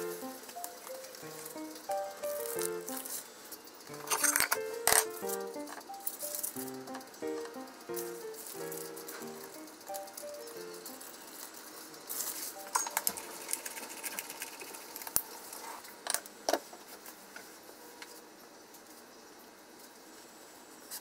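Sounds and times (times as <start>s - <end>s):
pepper mill grinding: 0.0s - 3.2s, 3.9s - 15.2s
aluminium foil crinkling: 3.9s - 7.0s, 7.9s - 15.9s.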